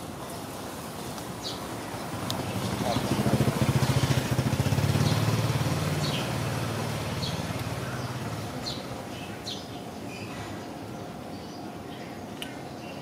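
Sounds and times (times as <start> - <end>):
engine low rough hum: 1.7 - 10.9.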